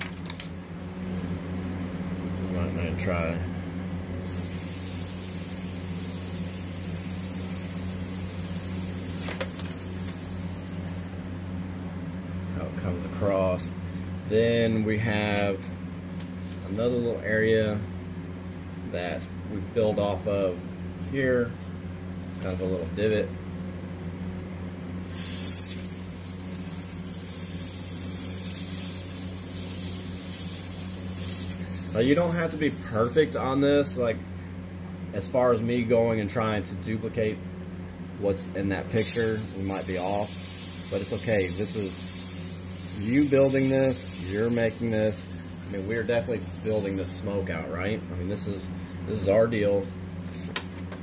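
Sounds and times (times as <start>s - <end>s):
airbrush air hiss: 4.2s - 11.1s, 25.0s - 33.5s, 38.9s - 47.2s.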